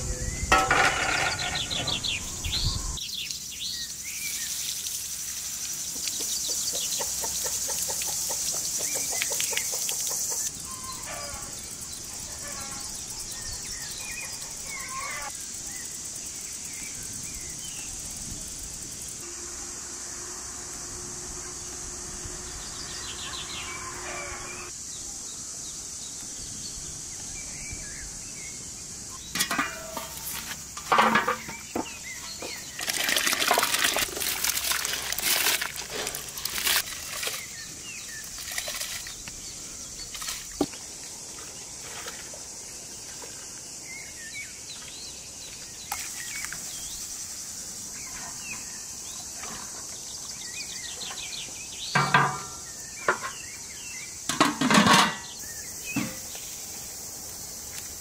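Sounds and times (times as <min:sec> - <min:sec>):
insects chirring: 0:00.0 - 0:58.0
metal pots clanking: 0:00.5 - 0:02.0, 0:29.2 - 0:37.4, 0:52.0 - 0:53.4, 0:54.3 - 0:56.2
liquid pouring into pot: 0:32.7 - 0:37.3.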